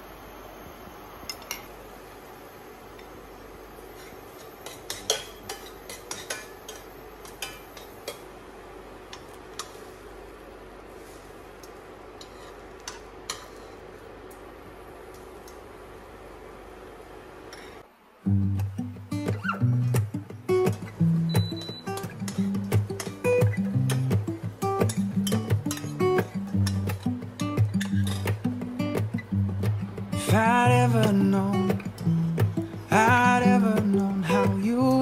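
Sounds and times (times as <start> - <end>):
steady hiss: 0.0 - 35.0
metal spoon scraping frying pan: 12.2 - 13.8.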